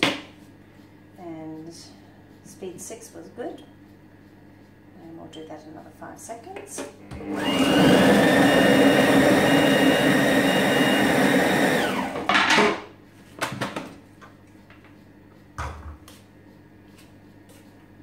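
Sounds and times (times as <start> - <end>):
kitchen machine chopping vegetables: 6.6 - 12.8
motor whine: 7.0 - 12.3.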